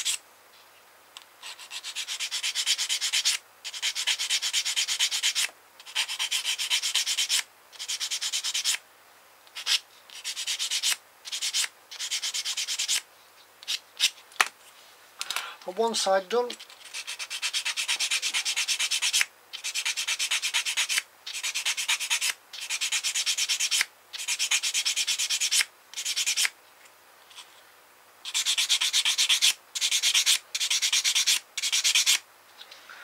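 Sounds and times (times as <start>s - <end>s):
sanding stick scratching plastic: 1.4s - 8.8s, 9.6s - 13.0s, 16.5s - 26.5s, 28.3s - 32.2s.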